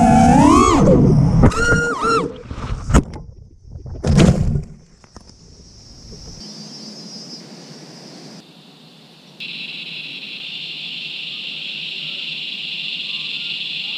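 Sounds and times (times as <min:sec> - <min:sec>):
insect chirring: 0:04.9 - 0:13.9
faint hiss: 0:05.6 - 0:13.9.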